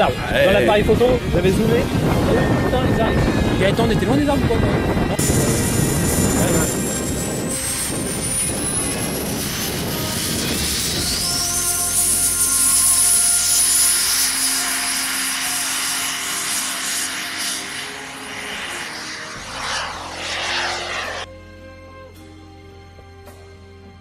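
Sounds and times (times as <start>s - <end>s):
jet turbine whining: 0.8s - 11.2s, 13.7s - 21.3s.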